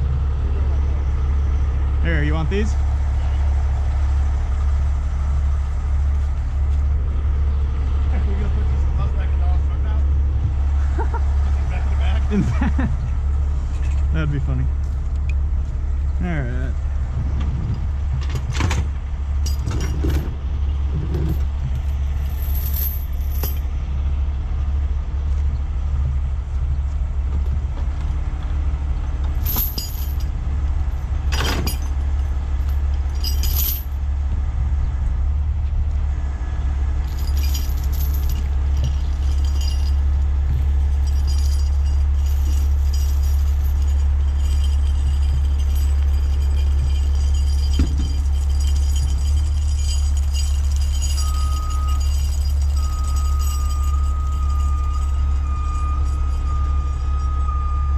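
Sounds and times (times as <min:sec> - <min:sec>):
diesel engine running: 0:00.0 - 0:57.9
chains clinking against metal: 0:19.4 - 0:20.3, 0:21.0 - 0:23.7, 0:29.3 - 0:30.4, 0:31.0 - 0:34.0, 0:37.0 - 0:57.9.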